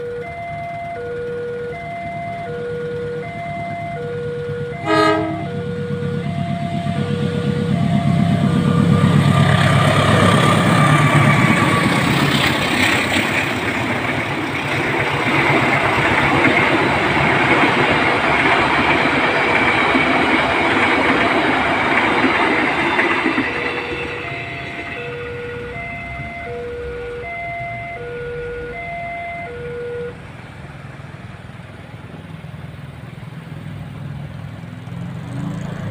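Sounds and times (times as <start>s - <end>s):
level-crossing warning bell: 0.0s - 30.2s
diesel locomotive engine throb: 0.0s - 34.7s
train coaches clattering on rails: 6.8s - 27.2s.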